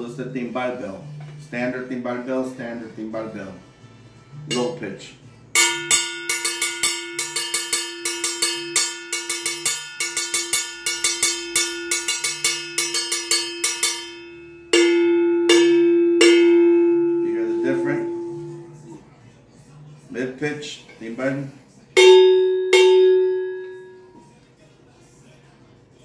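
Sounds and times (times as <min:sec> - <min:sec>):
cowbell struck with drumstick: 0:05.6 - 0:18.8, 0:22.0 - 0:24.0.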